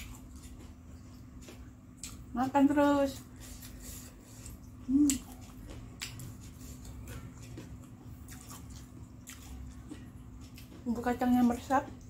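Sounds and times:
wet mouth eating noises: 3.3 - 12.0.

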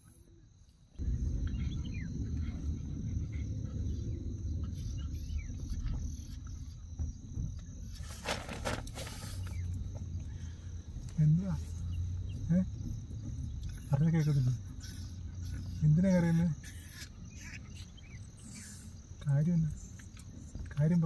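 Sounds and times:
crickets chirping: 0.0 - 21.0
low rumble: 1.0 - 21.0
rustling: 7.6 - 13.7.

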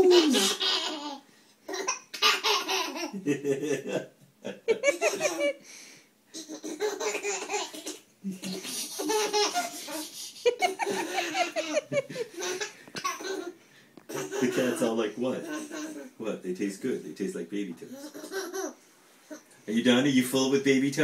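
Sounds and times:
baby belly-laughing: 0.0 - 3.2, 4.6 - 5.6, 6.3 - 16.2, 17.9 - 19.4.

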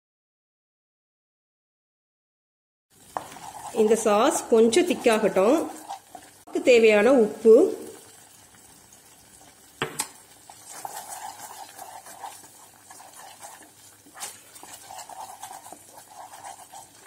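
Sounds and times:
spatula scraping a pot: 3.0 - 6.4, 10.2 - 17.0.

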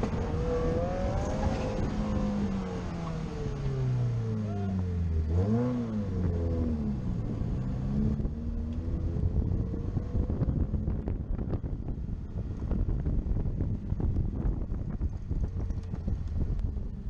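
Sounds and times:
car engine revving: 0.0 - 17.0
wind buffeting microphone: 6.2 - 17.0.

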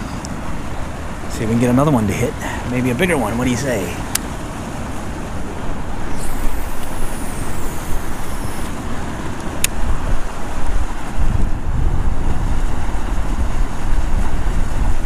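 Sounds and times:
rushing water: 0.0 - 15.0
wind on microphone: 3.9 - 15.0
fishing reel spool whirring: 4.2 - 10.7
fishing reel click: 6.1 - 8.8.

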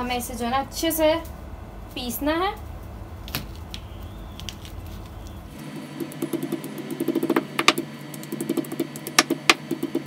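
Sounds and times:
stone knocking on stone: 6.0 - 9.6.

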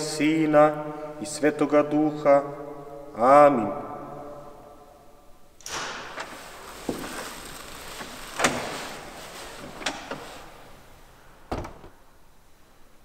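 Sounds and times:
heavy door thud: 5.6 - 7.0, 11.4 - 12.0
door latch clunks and knocks: 11.5 - 12.0.

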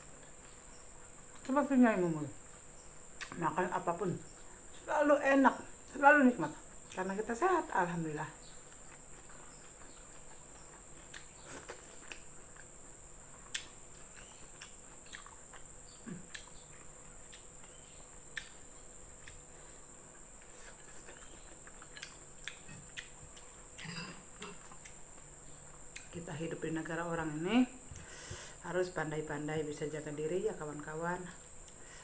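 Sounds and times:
steady high-pitched hiss: 0.0 - 32.0
chewing and smacking: 8.5 - 23.8, 24.4 - 26.2
fingers picking at food: 8.7 - 12.7, 13.4 - 19.5, 20.4 - 23.5.

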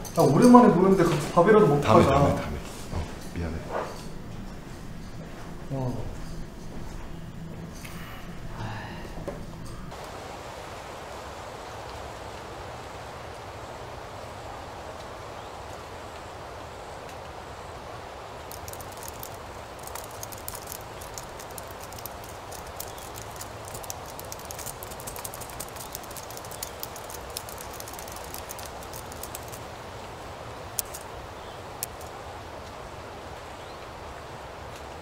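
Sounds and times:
steady background noise: 0.0 - 35.0
typing on laptop keyboard: 18.5 - 29.7, 30.8 - 31.1, 31.8 - 32.1.

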